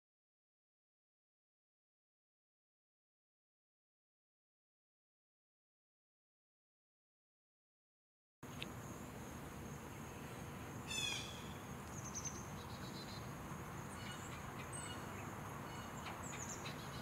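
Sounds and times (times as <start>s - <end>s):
insects droning: 8.4s - 17.0s
birds chirping: 8.8s - 17.0s.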